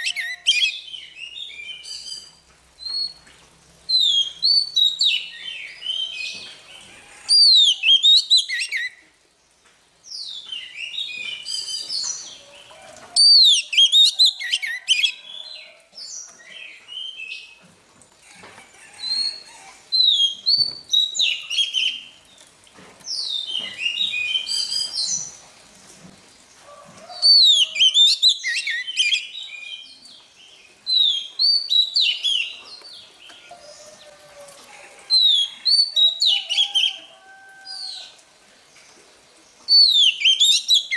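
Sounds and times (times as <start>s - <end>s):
bird singing whistled phrases: 0.0s - 3.2s, 7.4s - 9.0s, 27.3s - 29.8s, 39.7s - 40.9s.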